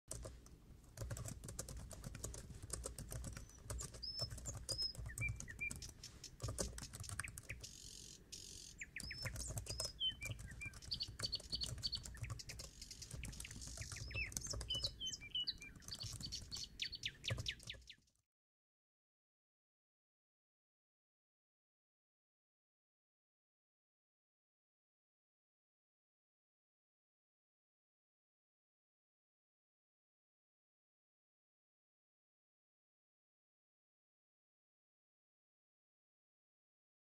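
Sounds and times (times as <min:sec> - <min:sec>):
tapping on laptop keyboard: 0:01.0 - 0:07.6, 0:09.0 - 0:15.0
birds chirping: 0:01.0 - 0:18.0.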